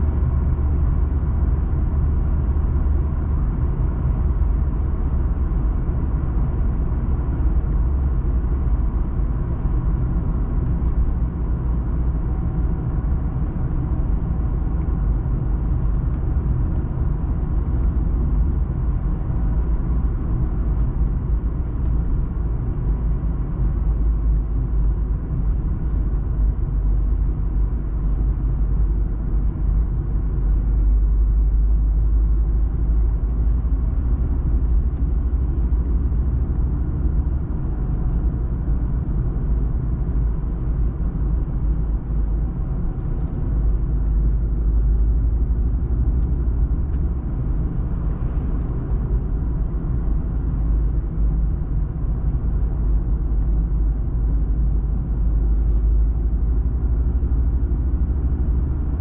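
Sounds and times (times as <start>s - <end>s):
car engine and tyre rumble: 0.0s - 59.0s.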